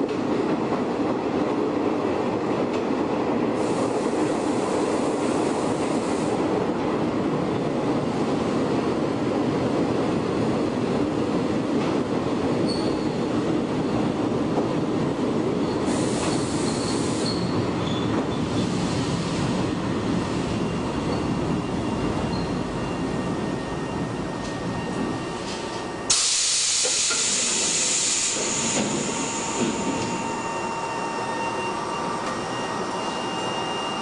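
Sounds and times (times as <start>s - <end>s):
high wheel squeals: 16.3s - 18.7s, 27.2s - 34.0s
electric train motors droning: 20.8s - 34.0s.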